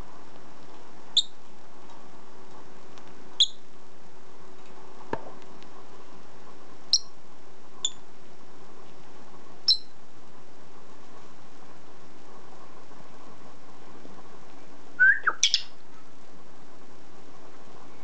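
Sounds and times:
lovebird chirping: 1.2s - 1.4s, 3.4s - 3.6s, 6.9s - 7.2s, 7.8s - 8.0s, 9.6s - 9.9s, 15.0s - 15.8s.

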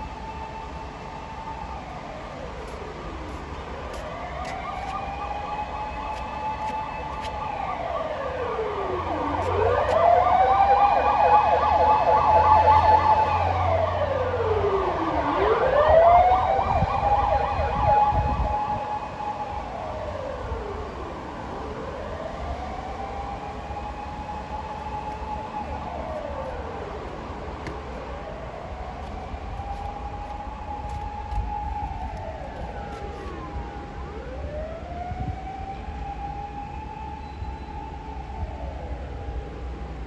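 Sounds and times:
fast pulsing siren tone: 0.0s - 20.6s
fire engine siren wailing: 0.0s - 40.0s.

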